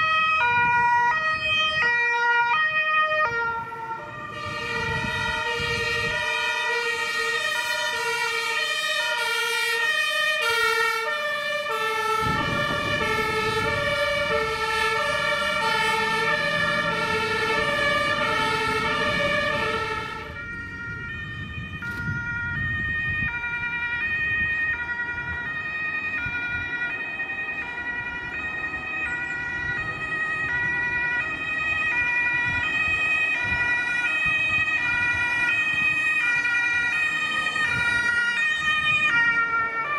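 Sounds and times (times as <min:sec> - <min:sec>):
two-tone fire engine sirens: 0:00.0 - 0:39.9
diesel engine rumble: 0:11.2 - 0:23.0.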